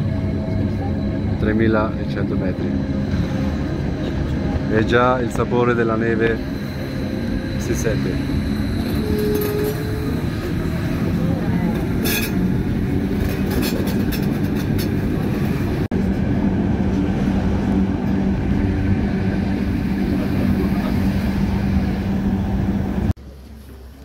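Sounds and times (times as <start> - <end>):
train rumbling: 0.0 - 24.0
low motor hum: 6.4 - 23.2.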